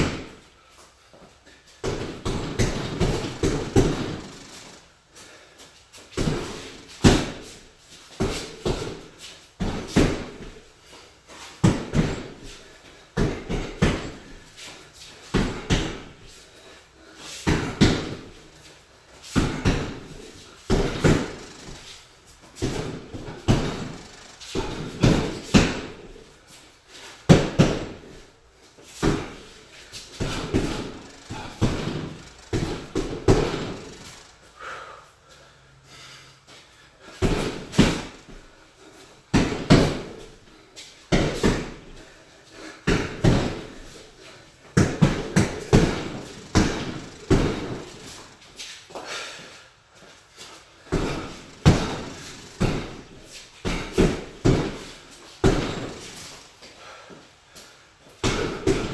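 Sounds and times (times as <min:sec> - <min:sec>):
punches thudding on heavy bag: 0:00.0 - 0:00.4, 0:01.8 - 0:04.8, 0:06.1 - 0:10.6, 0:11.6 - 0:14.4, 0:15.3 - 0:16.2, 0:17.4 - 0:18.4, 0:19.3 - 0:21.9, 0:22.5 - 0:26.2, 0:27.3 - 0:28.2, 0:29.0 - 0:34.2, 0:37.2 - 0:38.5, 0:39.3 - 0:40.4, 0:41.1 - 0:42.0, 0:42.8 - 0:44.0, 0:44.7 - 0:48.3, 0:50.8 - 0:56.3, 0:58.2 - 0:58.9.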